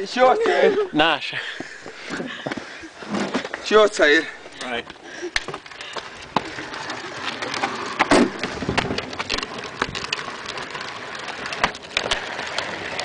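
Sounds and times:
wheelbarrow wheel rattling: 3.0s - 13.0s.

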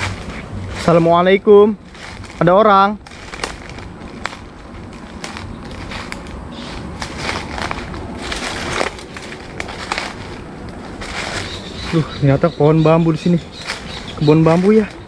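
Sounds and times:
footsteps crunching dry leaves: 0.0s - 15.0s.

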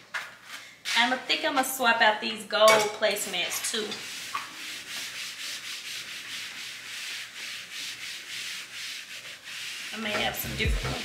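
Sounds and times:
cloth wiping tabletop: 4.0s - 11.0s
music with singing: 10.2s - 11.0s.

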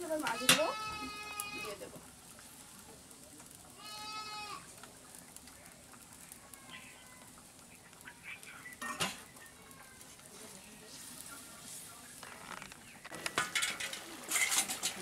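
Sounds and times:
goat bleating: 0.3s - 1.8s, 3.8s - 4.7s
steel bowl clanking down: 13.1s - 15.0s.

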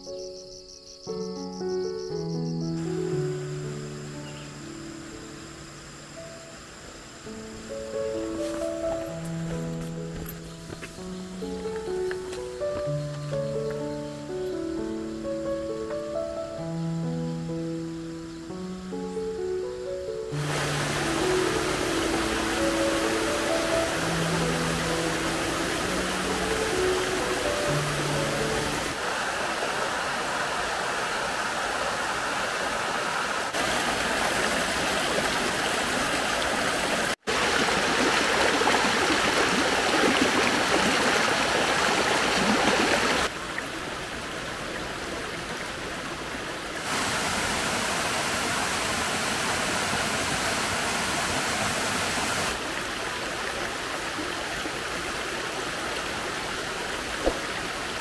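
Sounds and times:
waterfall rushing: 7.2s - 14.7s, 19.9s - 58.0s.

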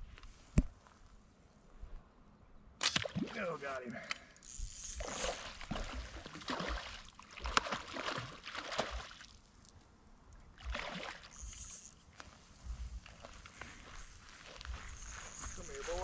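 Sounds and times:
fish splashing in water: 5.0s - 9.4s, 10.6s - 11.6s.

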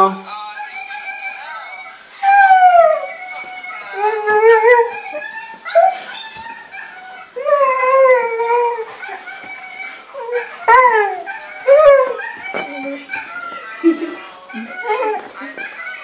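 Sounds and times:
dog howling: 0.6s - 16.0s.

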